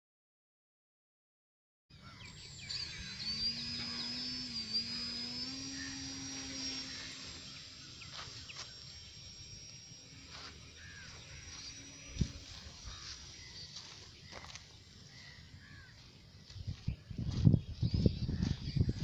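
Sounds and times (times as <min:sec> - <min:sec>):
model plane motor whining: 0:01.9 - 0:16.7.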